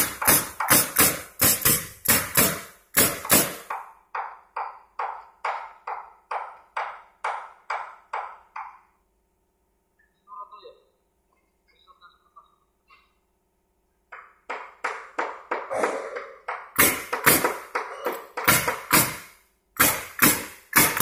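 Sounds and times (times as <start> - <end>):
nail gun shots into wood: 0.0 - 3.8, 16.5 - 17.8, 18.4 - 21.0.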